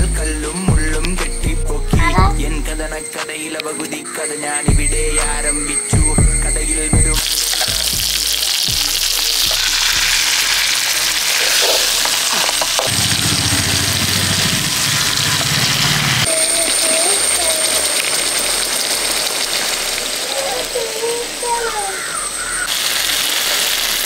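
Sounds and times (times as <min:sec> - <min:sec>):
fish sizzling in hot oil: 0:07.2 - 0:24.0.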